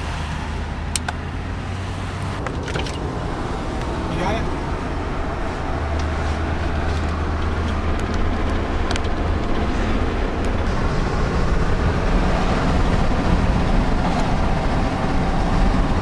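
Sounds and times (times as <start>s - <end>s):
tyre and engine road noise: 0.0s - 16.0s.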